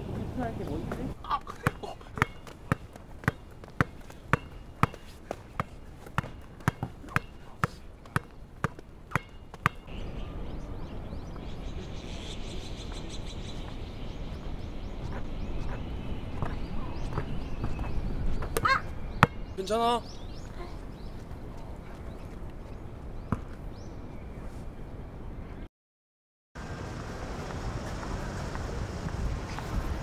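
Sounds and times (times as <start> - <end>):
basketball bouncing on hard court: 0.9 - 9.9.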